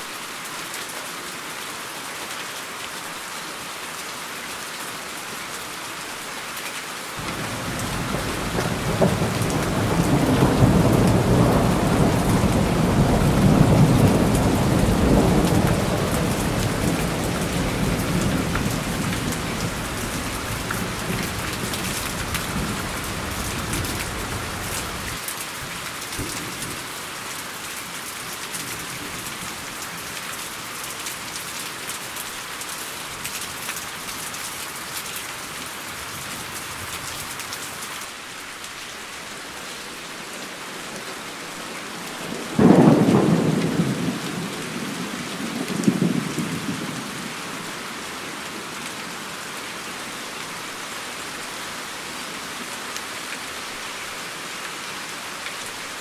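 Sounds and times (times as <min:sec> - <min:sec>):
heavy rain: 0:00.0 - 0:56.0
loud thunderclap: 0:07.2 - 0:19.8, 0:42.6 - 0:44.5
thunder rumble: 0:07.2 - 0:25.1.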